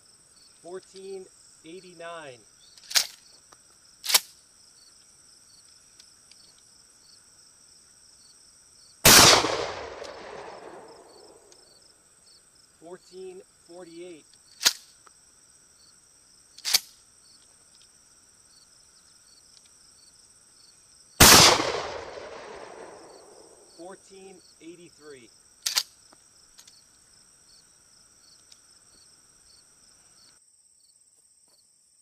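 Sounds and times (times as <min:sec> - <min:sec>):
shotgun blasts with echo: 0:09.0 - 0:11.5, 0:21.2 - 0:23.6.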